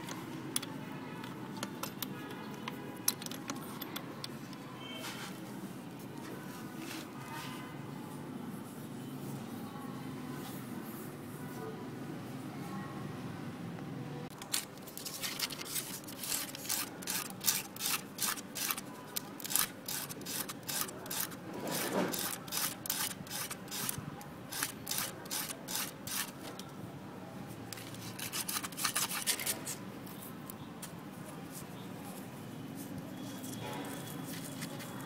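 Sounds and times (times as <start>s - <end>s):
chopstick rasping on sandpaper: 15.0s - 26.4s, 27.8s - 29.8s.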